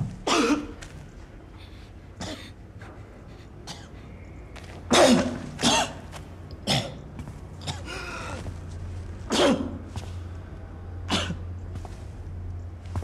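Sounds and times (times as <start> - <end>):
man coughing: 0.2 - 0.8, 3.6 - 3.9, 4.9 - 6.0, 9.3 - 9.8.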